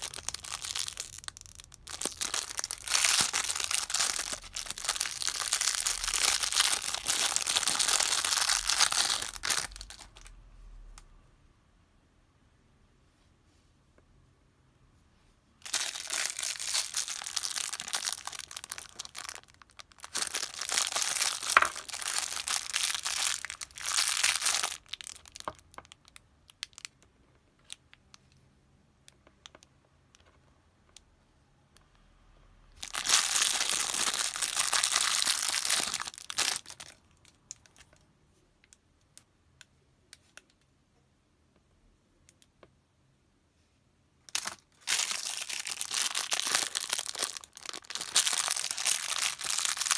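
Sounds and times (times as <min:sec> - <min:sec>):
plastic bag crinkling and tearing: 0:00.0 - 0:10.3, 0:15.6 - 0:27.0, 0:32.8 - 0:38.0, 0:44.3 - 0:49.9.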